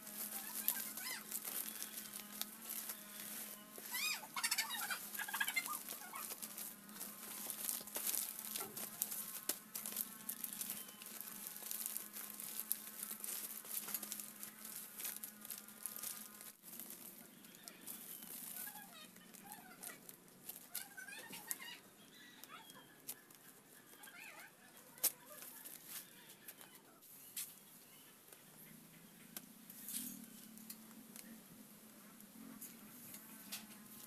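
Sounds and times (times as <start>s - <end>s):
coconut leaves rustling: 0.0s - 27.8s
chicken clucking: 3.3s - 6.4s.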